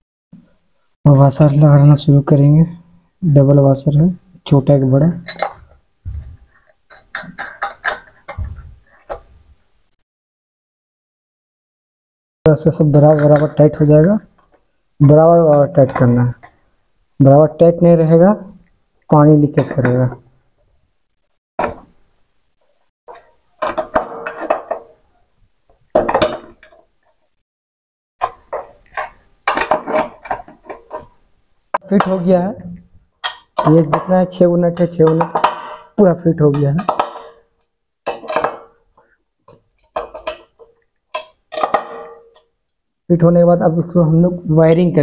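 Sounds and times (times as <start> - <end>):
spanner clinking on metal nuts: 5.2 - 5.7, 6.6 - 8.4.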